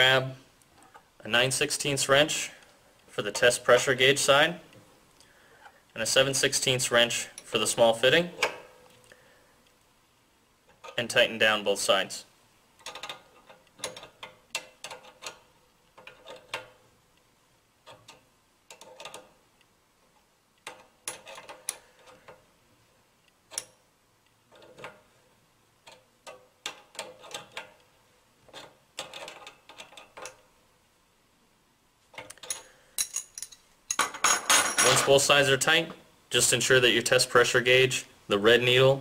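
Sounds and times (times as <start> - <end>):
wrenches clinking on metal fittings: 32.3 - 35.2.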